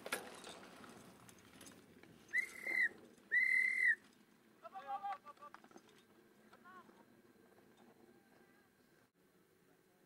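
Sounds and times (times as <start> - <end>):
whistle blasts: 2.3 - 4.0.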